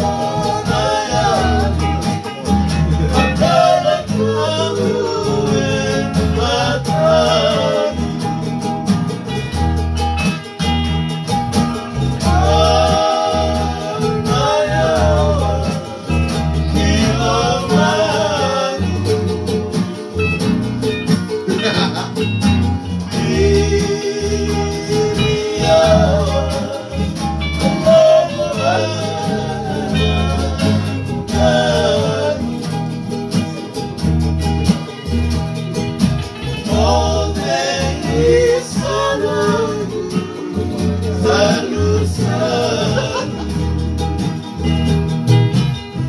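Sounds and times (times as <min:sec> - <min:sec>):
men singing together: 0:00.0 - 0:08.7, 0:12.0 - 0:20.2, 0:23.0 - 0:33.7, 0:36.4 - 0:43.9
strummed acoustic guitars: 0:00.0 - 0:46.0
ukulele: 0:00.0 - 0:46.0.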